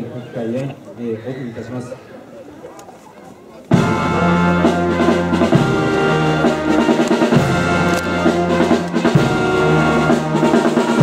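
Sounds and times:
brass band chords: 3.7 - 11.0
drum strokes: 3.7 - 11.0.

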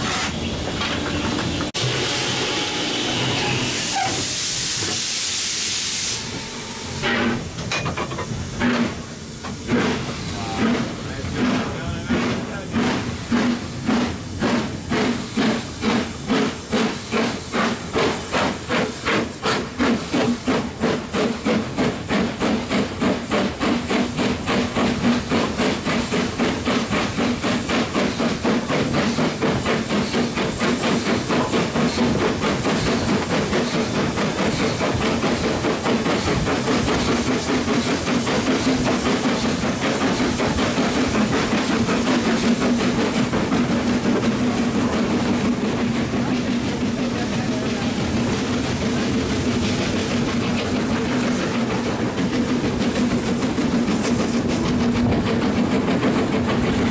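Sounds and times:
steam hissing: 0.0 - 56.9
steam locomotive exhaust beats: 0.0 - 56.9.

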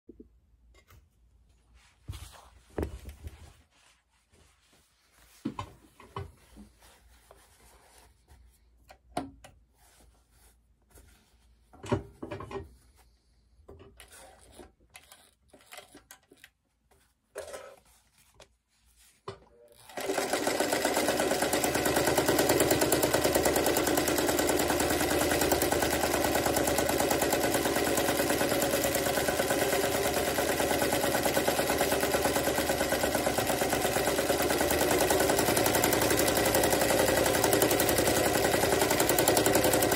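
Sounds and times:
fabric handling: 0.7 - 11.8, 14.0 - 26.1
sewing machine stitching: 14.0 - 16.5, 19.5 - 39.9.

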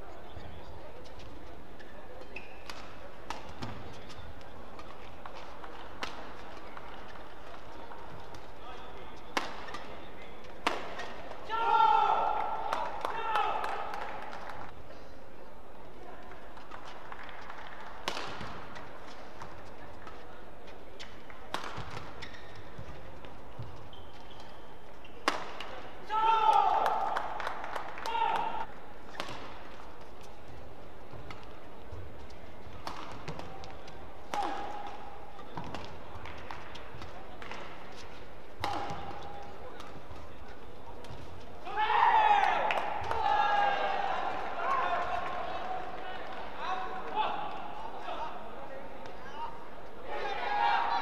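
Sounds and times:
shoe squeaks: 0.2 - 2.7, 3.6 - 4.5, 22.1 - 25.3
rackets striking shuttlecock: 2.2 - 7.0, 8.2 - 11.4, 18.0 - 20.2, 21.0 - 23.0, 25.2 - 25.9, 28.3 - 30.3, 32.7 - 40.2.

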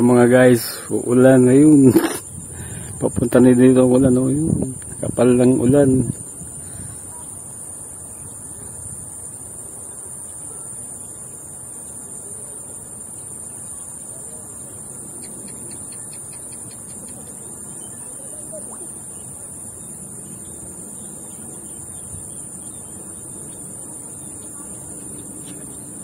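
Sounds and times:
insects chirping: 0.0 - 26.0
wind rumble: 0.9 - 7.2.

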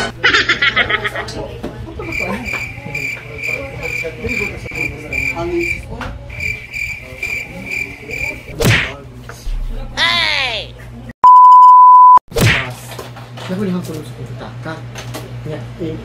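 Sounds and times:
cricket chirping: 2.1 - 8.5.

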